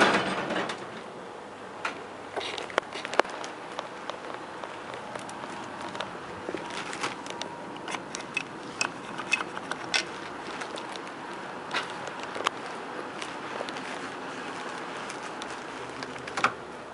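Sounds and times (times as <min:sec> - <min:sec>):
phone handling clicks and crackles: 0:02.4 - 0:13.8.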